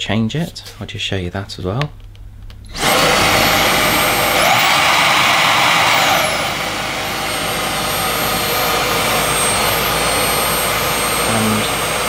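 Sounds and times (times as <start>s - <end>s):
vacuum motor whining: 2.6s - 12.0s.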